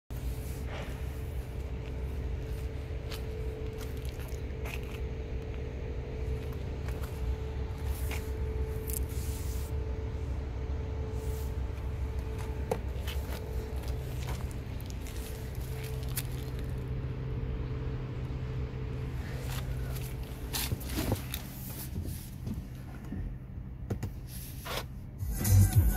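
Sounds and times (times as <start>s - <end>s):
diesel engine idling: 0.1s - 25.9s
handling clicks and scuffs: 19.4s - 23.2s.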